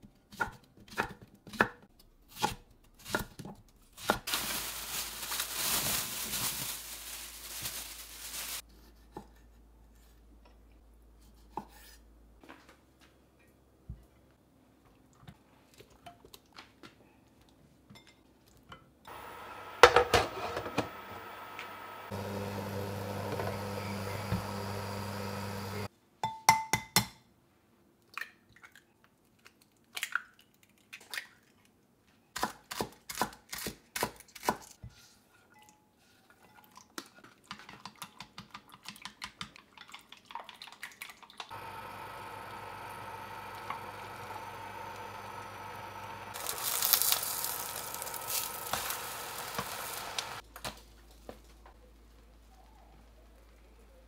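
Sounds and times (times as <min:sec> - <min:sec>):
kitchen knocks and clicks: 0:19.8 - 0:21.0.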